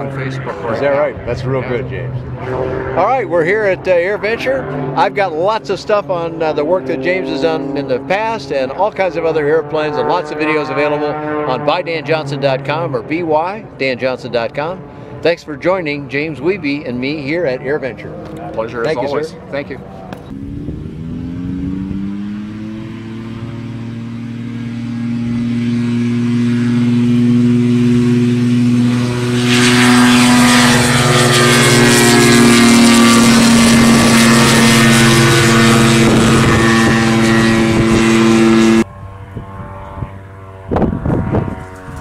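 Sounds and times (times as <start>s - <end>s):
ultralight plane engine: 0.0s - 42.0s.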